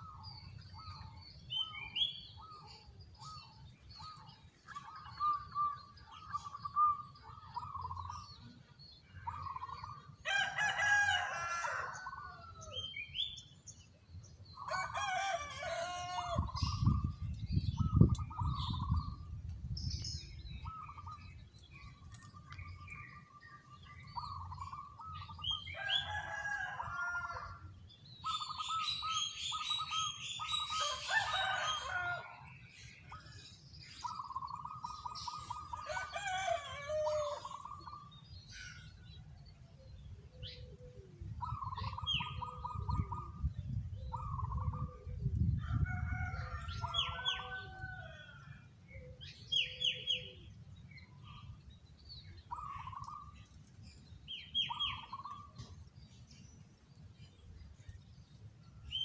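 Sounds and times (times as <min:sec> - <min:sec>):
other birds calling: 0:00.0 - 0:13.6, 0:14.3 - 0:39.4, 0:40.1 - 0:45.5, 0:46.1 - 0:59.0
dove cooing: 0:40.4 - 0:43.4.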